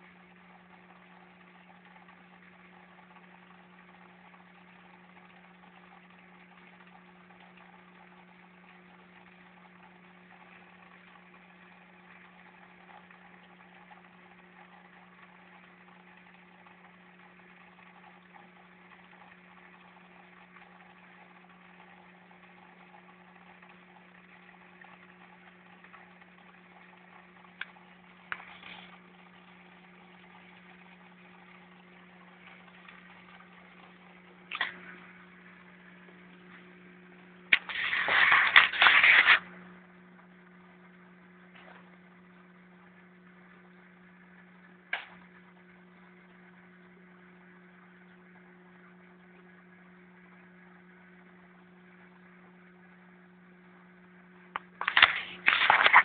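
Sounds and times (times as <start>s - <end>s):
small motor humming: 37.5s - 39.6s.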